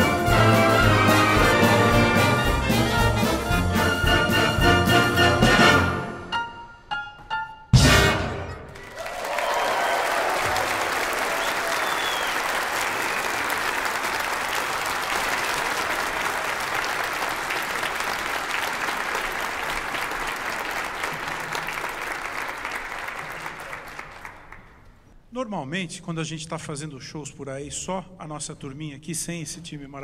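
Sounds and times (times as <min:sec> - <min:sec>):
audience applauding: 0:08.7 - 0:24.9.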